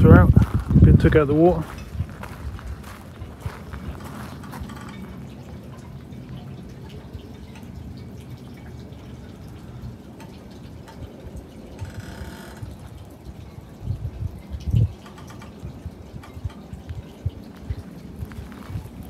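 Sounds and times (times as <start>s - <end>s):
water lapping and dripping: 0.2s - 19.0s.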